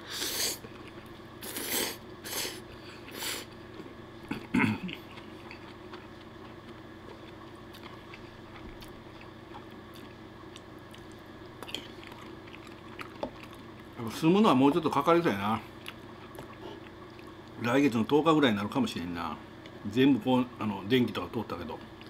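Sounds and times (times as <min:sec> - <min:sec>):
quiet chewing: 0:00.6 - 0:01.7, 0:02.7 - 0:14.0, 0:15.7 - 0:17.6
man slurping spaghetti: 0:01.4 - 0:03.5.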